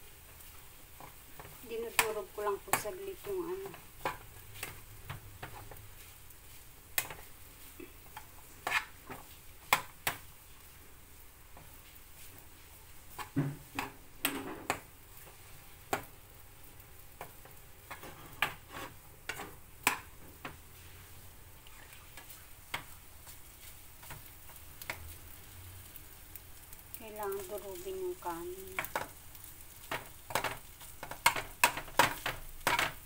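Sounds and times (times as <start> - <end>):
faint frying sizzle: 0.0 - 33.0
metal spatula scraping frying pan: 8.1 - 9.8, 17.9 - 20.1.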